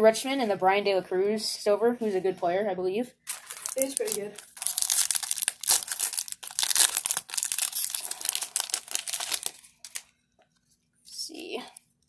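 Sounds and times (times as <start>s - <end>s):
plastic wrapper crinkling: 3.2s - 10.8s.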